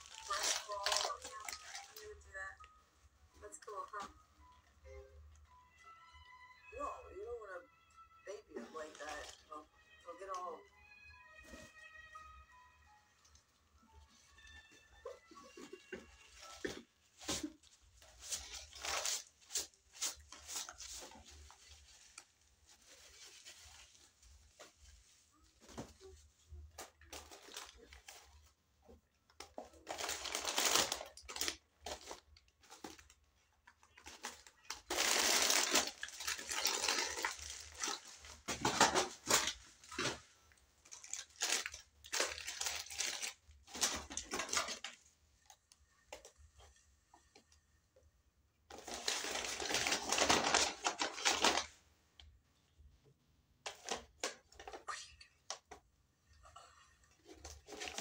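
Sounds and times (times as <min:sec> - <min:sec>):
paper bags rustling and crinkling: 0:00.0 - 0:02.2, 0:14.4 - 0:28.6, 0:29.5 - 0:33.3, 0:33.9 - 0:46.7, 0:48.7 - 0:51.8, 0:57.2 - 0:58.0.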